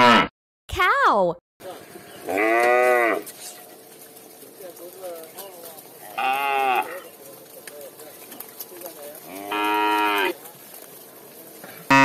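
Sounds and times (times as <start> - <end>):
faint lowing of cows: 2.2 - 3.7, 5.9 - 7.4, 8.4 - 10.6
cow mooing: 2.3 - 3.4, 6.0 - 7.1, 9.2 - 10.4.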